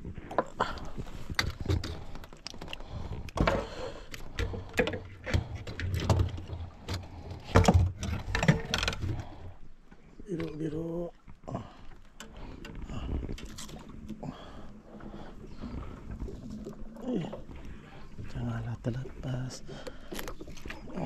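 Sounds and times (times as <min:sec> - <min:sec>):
clicks knocks and rattles: 0:04.3 - 0:09.2.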